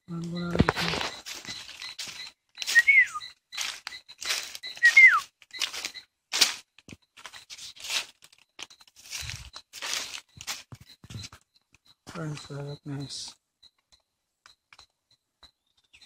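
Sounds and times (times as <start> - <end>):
footsteps through dry leaves: 0.4 - 10.9
short downward whistles: 2.6 - 3.4, 4.6 - 5.3.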